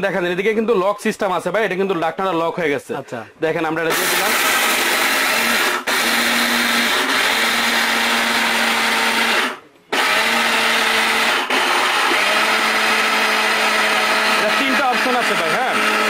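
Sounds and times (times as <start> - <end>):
mixer grinder grinding rice: 3.9 - 16.0.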